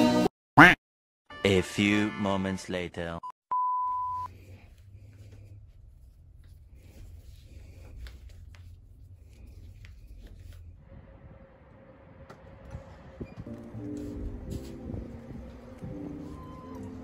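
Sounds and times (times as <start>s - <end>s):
short steady beep: 3.2s - 4.3s
shoelaces being pulled and tied: 4.6s - 10.7s
faint rustles and small clicks: 4.6s - 10.8s.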